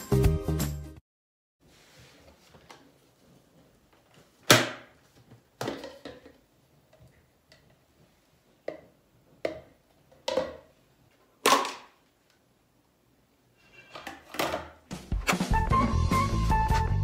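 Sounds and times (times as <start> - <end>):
plastic parts knocking together: 11.4 - 12.0.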